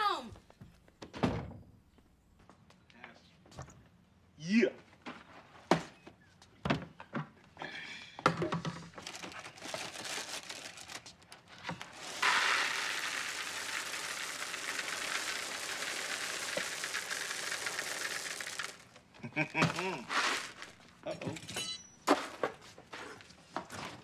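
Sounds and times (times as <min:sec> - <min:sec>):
cereal box crinkling: 0:09.0 - 0:19.0, 0:19.7 - 0:21.0
cereal pouring into a bowl: 0:09.5 - 0:11.0, 0:11.7 - 0:19.0, 0:20.0 - 0:20.8.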